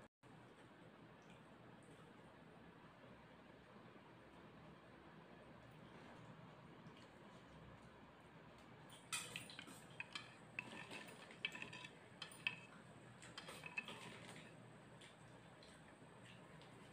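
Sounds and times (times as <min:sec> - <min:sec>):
metal spoon clinking in bowl: 0:09.1 - 0:14.4.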